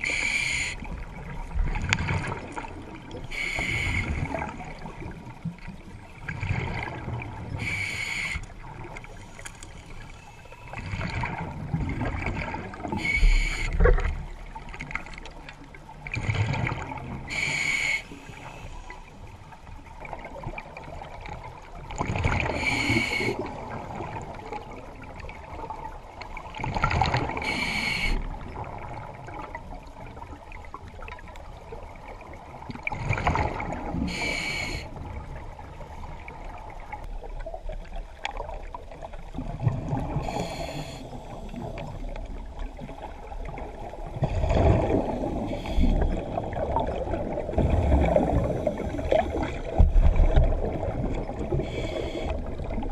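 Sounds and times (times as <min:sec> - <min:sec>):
regulator hissing inhale: 0:00.0 - 0:00.9, 0:03.3 - 0:04.3, 0:07.6 - 0:08.6, 0:13.0 - 0:13.8, 0:17.3 - 0:19.2, 0:22.6 - 0:23.4, 0:27.4 - 0:28.2, 0:34.1 - 0:34.9, 0:40.2 - 0:41.6, 0:45.3 - 0:46.6, 0:51.5 - 0:52.5
bubbling exhale underwater: 0:43.5 - 0:52.9.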